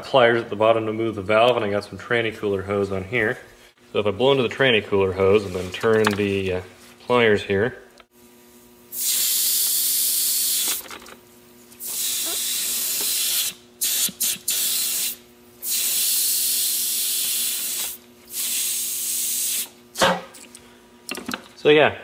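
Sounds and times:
air hissing from small holes: 8.9 - 10.8, 11.8 - 19.8.

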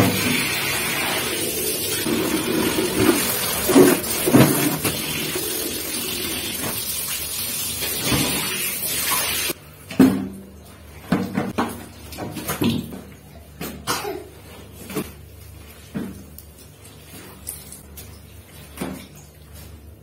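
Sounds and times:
water running: 0.0 - 9.6
soaked blanket thumping in buckets: 2.0 - 5.5, 11.0 - 15.2.

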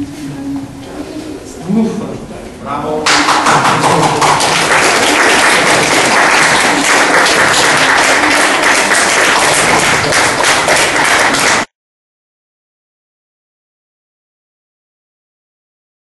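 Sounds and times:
audience applauding: 3.0 - 11.7.

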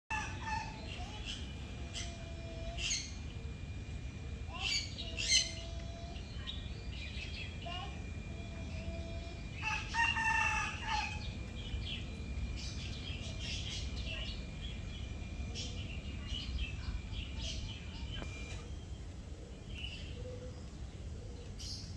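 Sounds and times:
rooster crowing: 0.1 - 0.8, 9.6 - 11.3
small birds chirping: 0.2 - 10.0, 10.8 - 21.9
faint steady high tone: 0.2 - 21.9.

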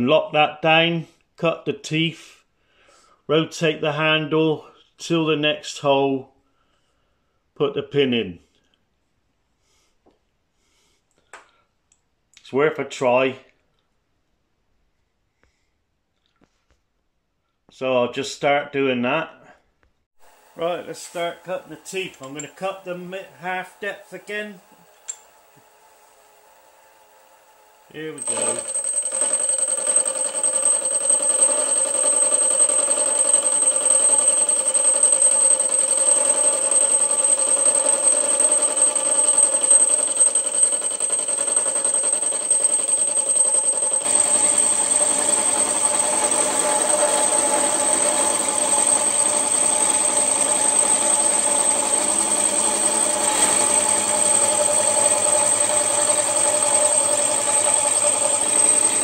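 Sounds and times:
milling machine cutting gear teeth: 20.6 - 59.0.

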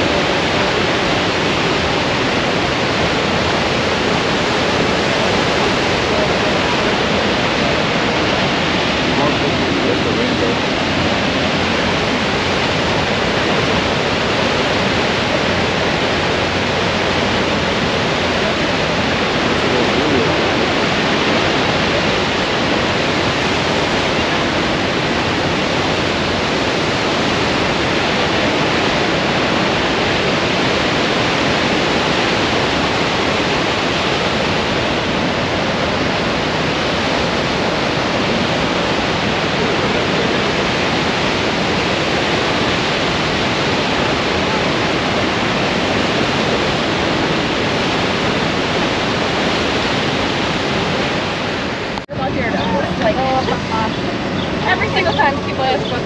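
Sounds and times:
loud waterfall rush: 0.0 - 56.0.

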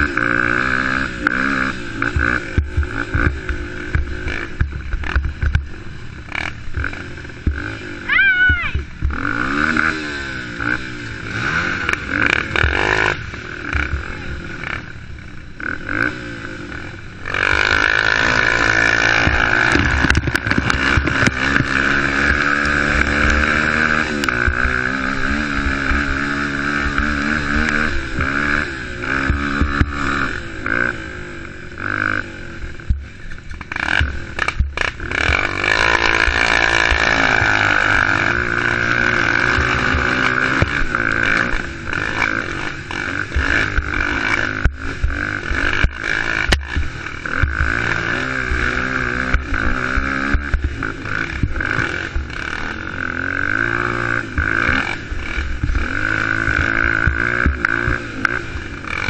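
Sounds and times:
quad engine revving hard: 0.0 - 5.6, 6.2 - 15.0, 15.6 - 59.0
knocks and rattles over rough ground: 0.0 - 7.8, 17.3 - 30.9, 32.8 - 59.0.

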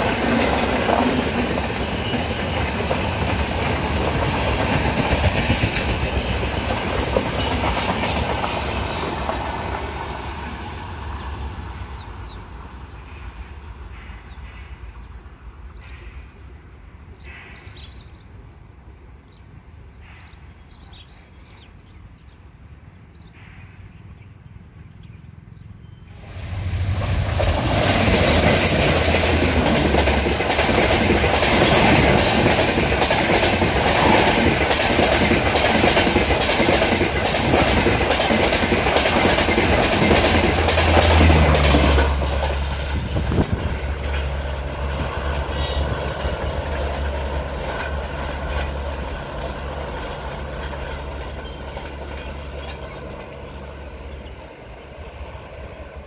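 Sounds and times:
wheels clacking over rail joints: 0.0 - 11.2, 26.4 - 54.4
train rushing past: 0.0 - 19.2, 25.4 - 56.0.

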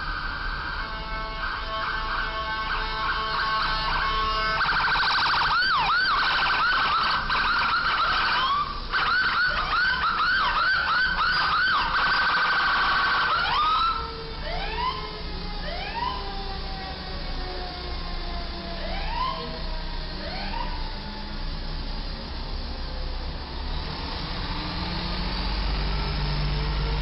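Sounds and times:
electronic siren warbling and whooping: 4.6 - 15.1.

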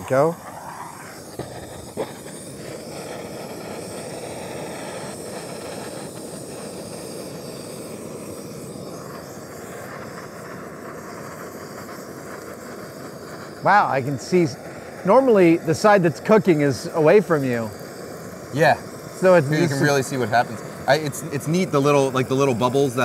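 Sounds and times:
gas torch flame hissing: 0.0 - 23.0.

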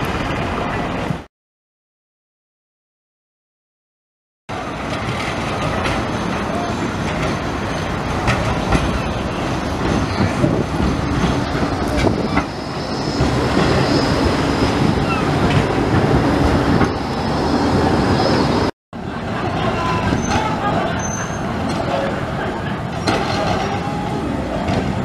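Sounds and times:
tram running on rails: 0.0 - 1.3, 4.5 - 25.0.

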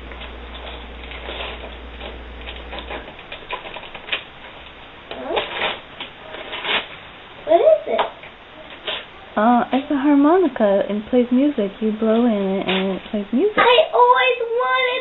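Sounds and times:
wrapping paper crinkling and tearing: 0.5 - 7.0.

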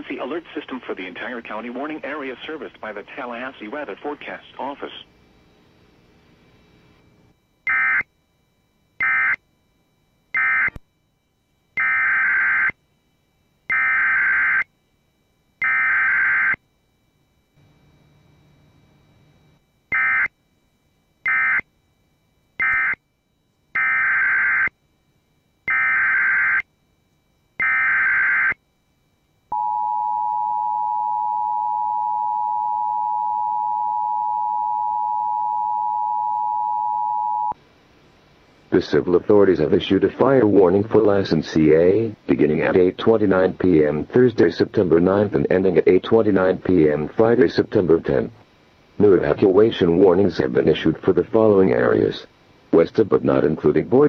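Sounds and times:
two-tone attention signal: 29.5 - 37.6.

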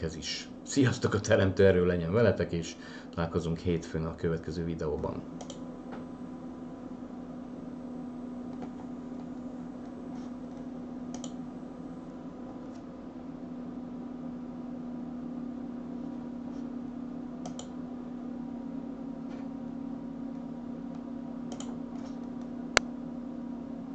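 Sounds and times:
steady low hum: 0.0 - 23.9
computer mouse clicks: 5.4 - 5.6, 10.5 - 11.4, 17.4 - 17.7, 21.5 - 22.2.

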